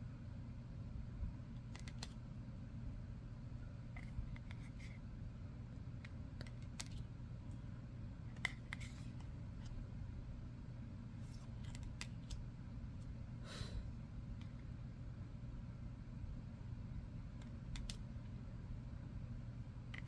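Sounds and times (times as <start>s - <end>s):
steady low hum: 0.0s - 20.0s
cards sliding and clicking: 1.7s - 2.2s, 6.4s - 7.1s, 8.3s - 9.7s, 11.2s - 12.4s.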